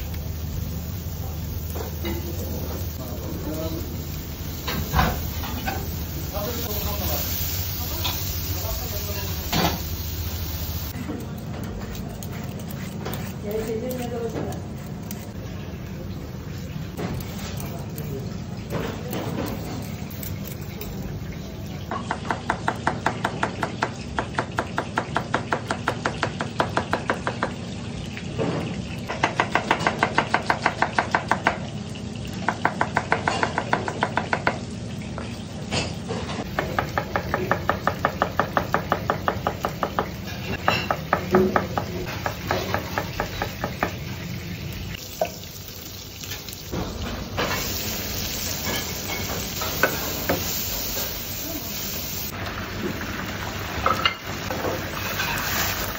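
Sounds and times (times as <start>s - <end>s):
vegetables sizzling in a frying pan: 0.0s - 11.3s, 34.5s - 55.9s.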